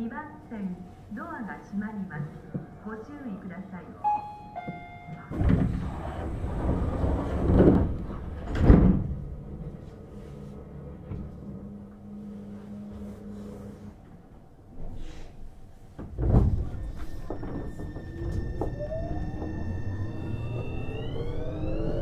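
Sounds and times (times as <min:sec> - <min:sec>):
low train hum: 0:00.0 - 0:22.0
train door chime: 0:04.0 - 0:06.0, 0:16.6 - 0:22.0
sliding doors closing with thump: 0:04.7 - 0:12.1, 0:15.9 - 0:22.0.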